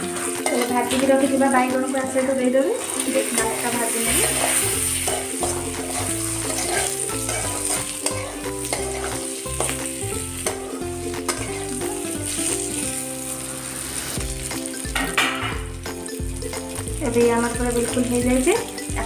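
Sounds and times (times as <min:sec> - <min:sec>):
spatula scraping and tapping pan: 0:00.0 - 0:01.3, 0:02.8 - 0:12.6, 0:14.2 - 0:15.8
vegetables sizzling in hot oil: 0:00.0 - 0:19.0.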